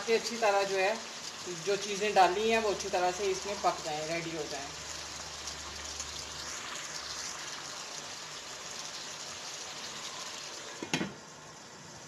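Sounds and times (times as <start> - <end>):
curry bubbling and sizzling in a pan: 0.0 - 12.0.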